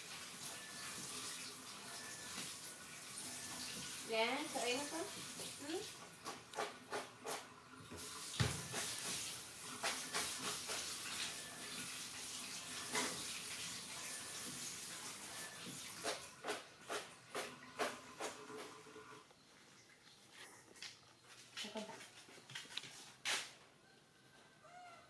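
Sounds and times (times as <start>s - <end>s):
tap water splashing in sink: 4.5s - 14.7s.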